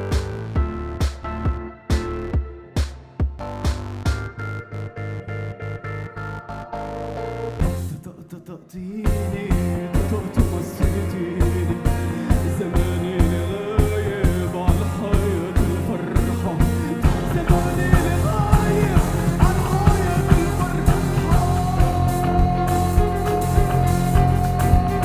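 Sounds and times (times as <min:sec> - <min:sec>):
electronic music with pulsing beat: 0:00.0 - 0:08.0, 0:09.1 - 0:25.0
heavy bass: 0:00.0 - 0:08.0, 0:09.1 - 0:25.0
long held high note: 0:19.6 - 0:25.0.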